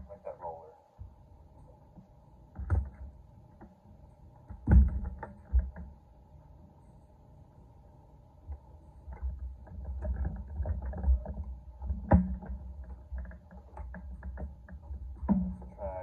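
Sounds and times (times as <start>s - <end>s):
faint steady hum: 0.0s - 16.0s
training handle thuds and rubbing: 4.4s - 6.0s, 9.1s - 15.7s.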